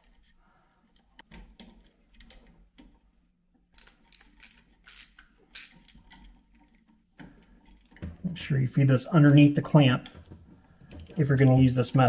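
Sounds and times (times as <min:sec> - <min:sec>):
screwdriver clicks and scrapes: 0:00.0 - 0:02.5, 0:03.8 - 0:08.0.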